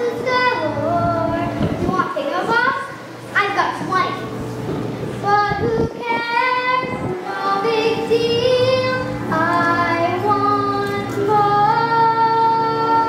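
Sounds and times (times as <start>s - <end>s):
girls singing: 0.0s - 1.9s, 5.2s - 13.0s
musical accompaniment: 4.2s - 13.0s.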